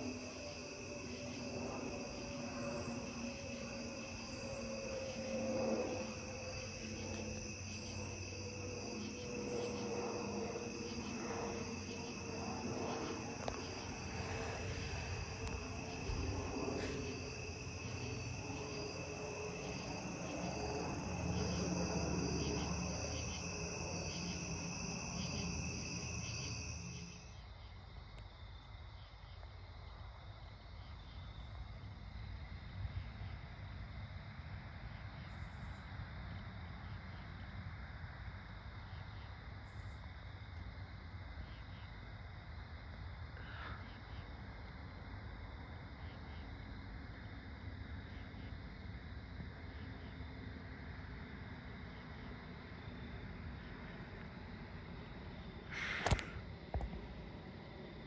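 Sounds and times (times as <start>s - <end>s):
distant jet aircraft drone: 0.0s - 27.5s, 30.7s - 58.0s
night insects trilling: 0.0s - 58.0s.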